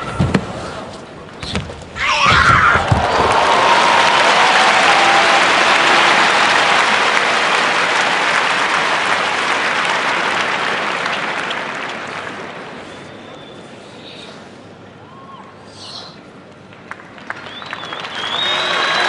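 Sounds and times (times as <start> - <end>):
arena crowd applauding: 2.8 - 13.0, 16.7 - 19.0.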